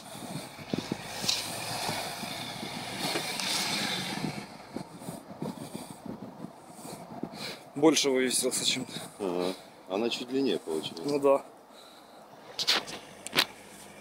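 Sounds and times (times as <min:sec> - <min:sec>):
car engine running: 0:00.0 - 0:05.6.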